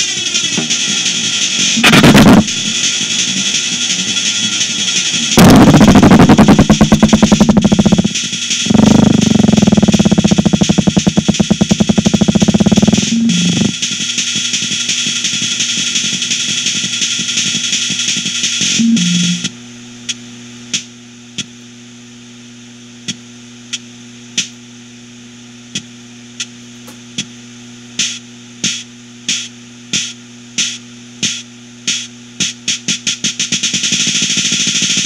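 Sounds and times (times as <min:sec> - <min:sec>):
dense noisy electronic texture: 0:00.5 - 0:19.6
low synthesizer drone: 0:01.7 - 0:03.0, 0:05.2 - 0:14.0, 0:18.7 - 0:20.0
sharp percussive clicks: 0:05.4 - 0:13.7.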